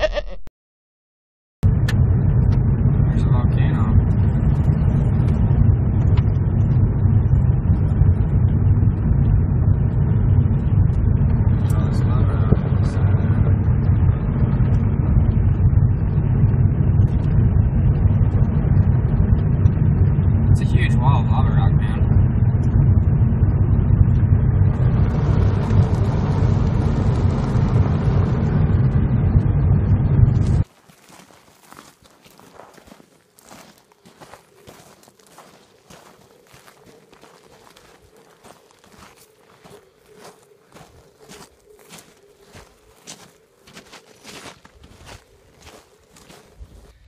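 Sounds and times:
car engine: 0:01.6 - 0:47.0
tyres on gravel: 0:30.6 - 0:47.0.

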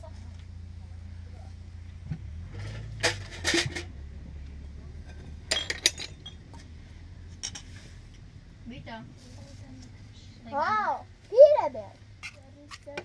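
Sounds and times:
dishes and glassware clinking: 0:05.0 - 0:06.6.

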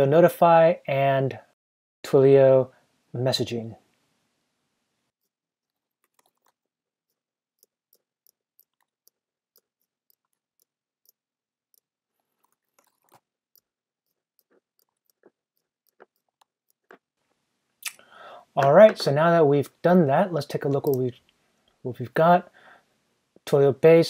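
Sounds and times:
mouse and keyboard clicks: 0:06.0 - 0:11.2.

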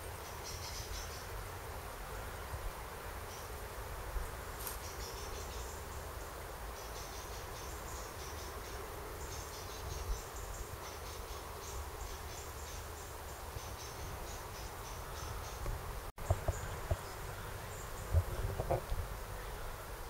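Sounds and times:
insects chirping: 0:03.2 - 0:20.0
bumps on microphone: 0:18.1 - 0:19.0.

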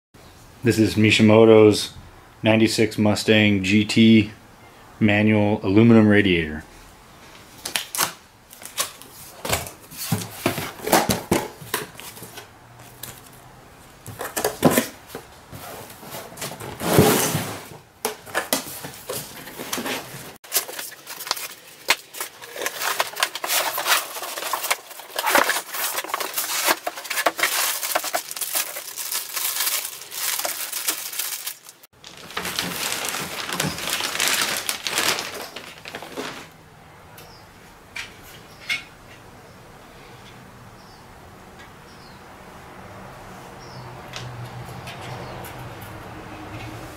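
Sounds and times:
cardboard box scraping and knocking: 0:14.1 - 0:17.8, 0:18.4 - 0:20.7
plastic wrap crinkling: 0:18.3 - 0:36.6.

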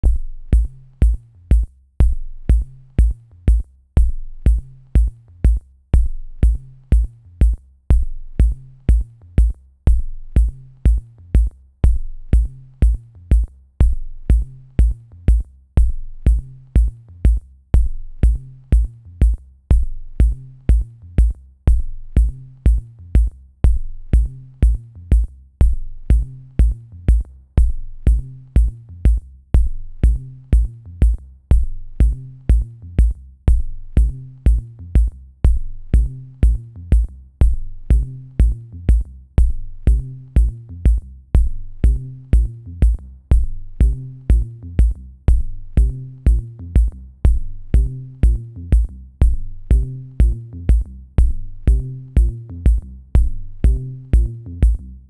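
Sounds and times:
electronic music with drum-machine beat: 0:00.0 - 0:55.0.

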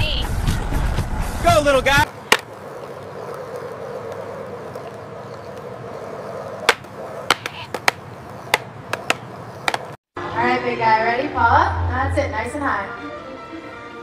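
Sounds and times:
skateboard wheels rolling on asphalt: 0:00.4 - 0:10.0.

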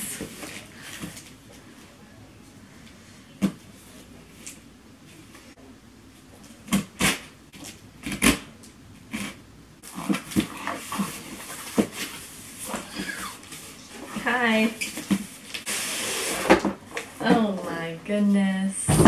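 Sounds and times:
tape tearing and scraping: 0:06.7 - 0:08.5, 0:15.5 - 0:16.8.

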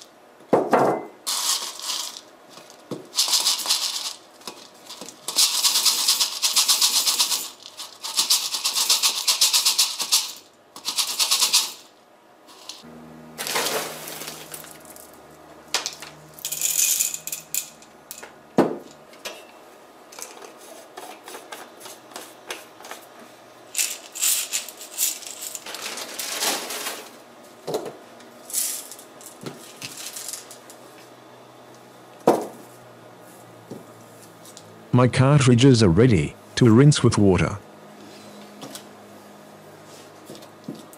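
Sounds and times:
ceramic balls pouring through funnel: 0:01.3 - 0:02.3.

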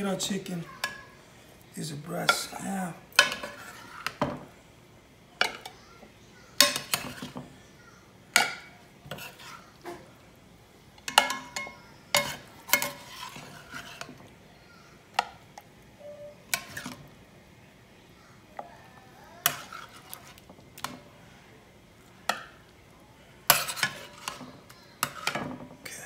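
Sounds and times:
metal spoon clanking on pot and plate: 0:06.6 - 0:07.4, 0:11.0 - 0:14.1.

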